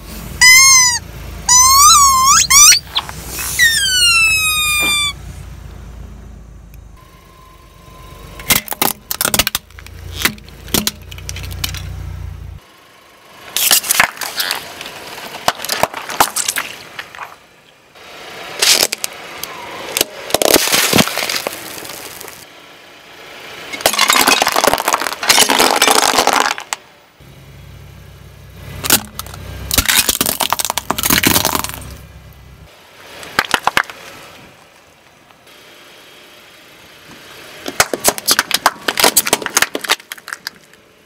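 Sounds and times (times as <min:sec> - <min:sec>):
car engine running low: 0:00.0 - 0:41.0
tyre crushing plastic objects: 0:13.6 - 0:17.4, 0:20.0 - 0:22.4, 0:23.8 - 0:26.8, 0:28.8 - 0:31.9, 0:37.6 - 0:40.8.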